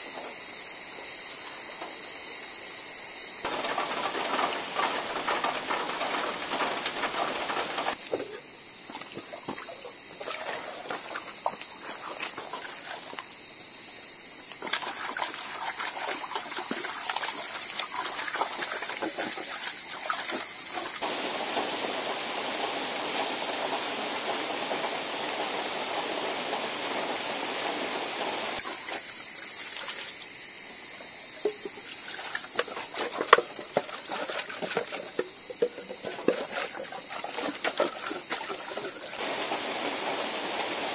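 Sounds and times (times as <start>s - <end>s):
drizzle pattering into water drum: 3.5s - 13.3s, 14.5s - 21.0s, 31.4s - 40.8s
tap water splashing in pot: 7.5s - 13.3s, 14.5s - 21.0s, 31.4s - 39.2s.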